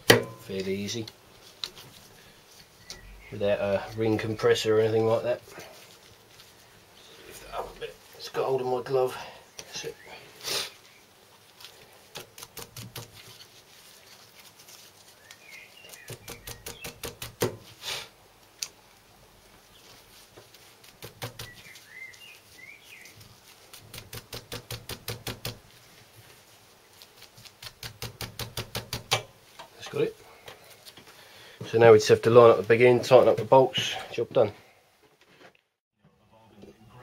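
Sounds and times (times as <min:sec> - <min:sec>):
faint bird chirps: 0:02.7 - 0:03.9, 0:15.1 - 0:17.0, 0:21.3 - 0:23.2.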